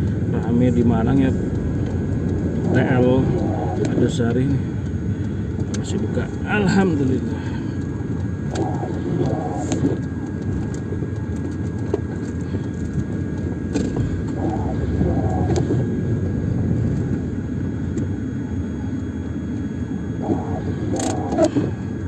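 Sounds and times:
car engine and tyres rumbling: 0.0s - 22.0s
sharp clicks: 20.2s - 21.6s.

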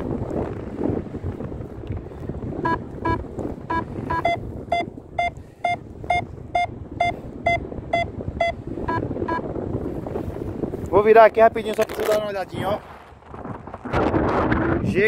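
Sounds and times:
wind rumble on microphone: 0.0s - 15.0s
variometer short beeps: 2.6s - 9.5s.

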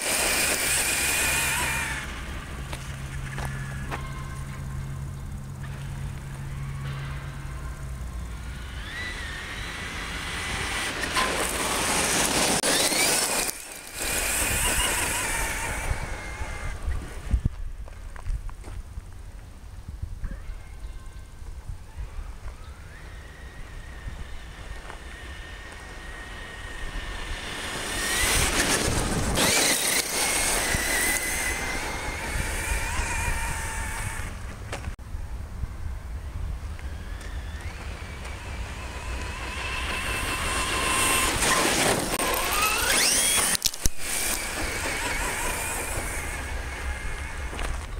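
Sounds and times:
gravel spraying from tyres: 0.0s - 4.0s, 8.4s - 18.0s, 23.6s - 35.0s, 36.9s - 47.9s
high-pitched electric motor whine: 0.0s - 18.8s, 20.5s - 34.9s, 35.5s - 47.9s.

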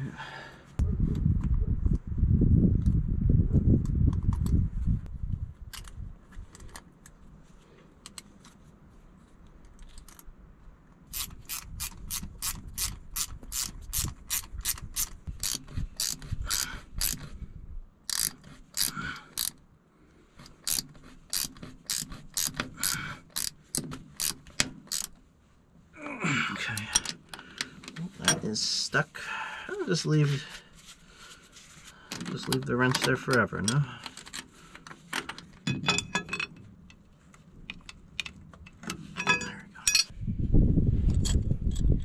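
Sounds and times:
ratcheting wrench clicking: 11.1s - 17.4s, 18.1s - 19.6s, 20.4s - 25.2s.

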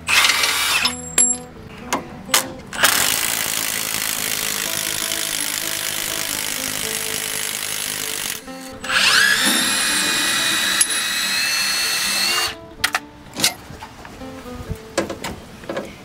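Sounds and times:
power tool motor whine: 0.0s - 1.0s, 2.8s - 12.6s.

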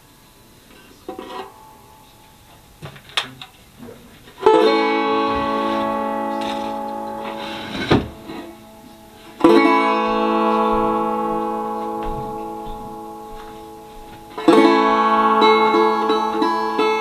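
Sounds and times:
banjo chords ringing: 4.4s - 17.0s.

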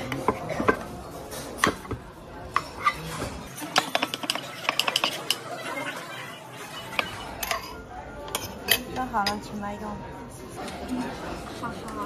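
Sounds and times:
spoon scraping ceramic pot: 2.5s - 8.9s.

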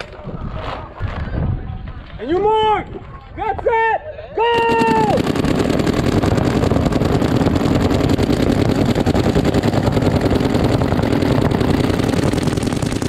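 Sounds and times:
paintball markers firing rapidly: 4.6s - 13.0s.

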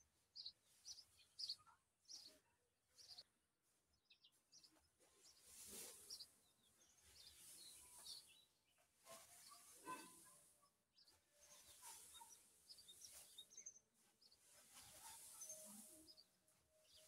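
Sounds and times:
small birds chirping: 0.0s - 17.0s
straw rustling under pitchfork: 5.1s - 10.6s, 11.2s - 17.0s.

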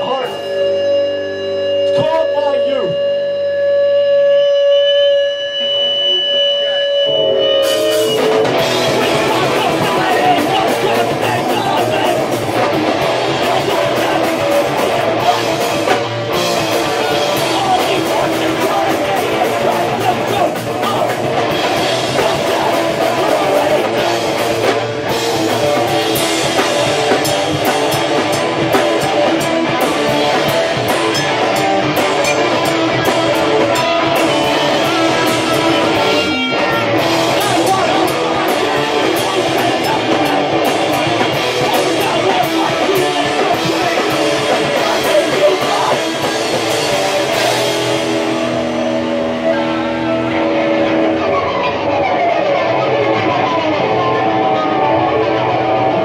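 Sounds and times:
electric guitar: 0.0s - 56.0s
rock band playing live: 0.0s - 56.0s
drum kit: 7.0s - 51.6s.

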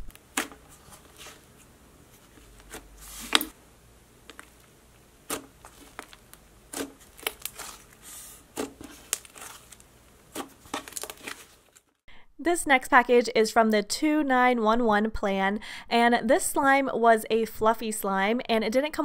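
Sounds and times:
slime clicking and popping: 5.3s - 7.7s.

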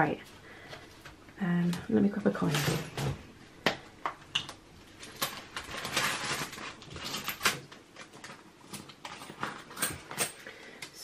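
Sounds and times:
hands rummaging through small objects: 4.3s - 10.5s.

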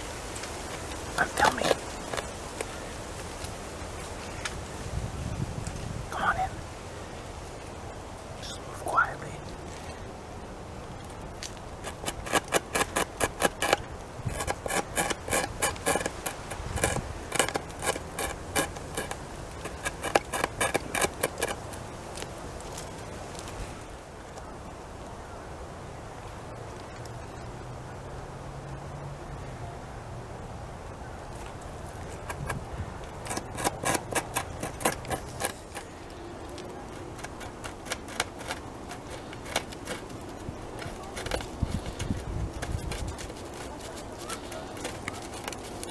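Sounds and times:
beaver gnawing wood: 0.0s - 4.6s, 10.9s - 23.9s, 31.2s - 45.9s.

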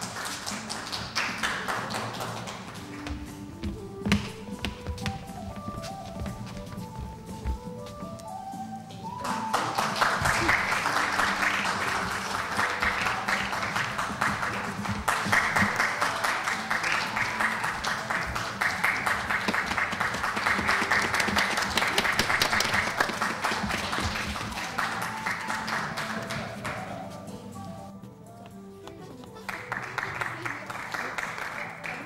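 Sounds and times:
audience applauding: 0.0s - 3.2s, 9.0s - 27.1s, 29.4s - 32.0s
faint music: 0.0s - 32.0s.

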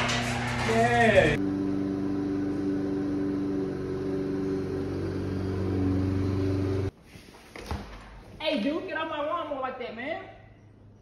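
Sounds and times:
lawnmower engine running: 1.4s - 6.9s.

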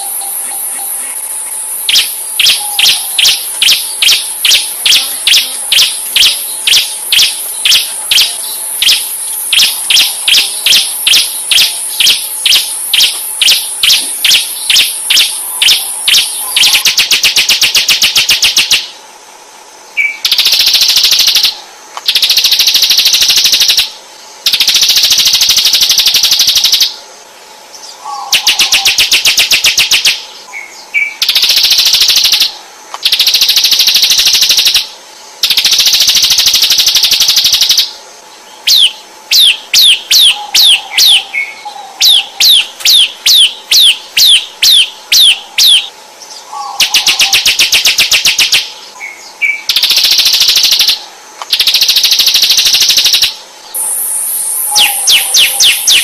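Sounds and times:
bird buzzing trills: 0.0s - 56.0s
sharp downward-sliding bird notes: 38.6s - 56.0s.

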